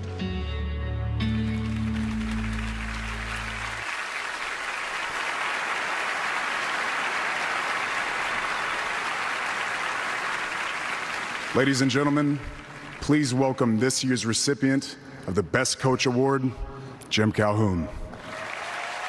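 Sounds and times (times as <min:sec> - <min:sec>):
audience applauding: 0:01.4 - 0:13.8, 0:18.1 - 0:19.0.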